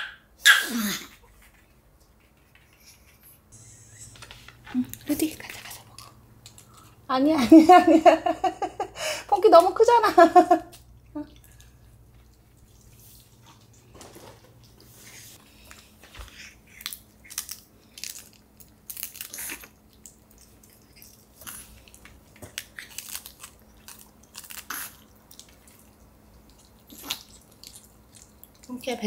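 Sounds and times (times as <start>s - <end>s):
dog chewing crisp leaf: 15.6s - 29.0s.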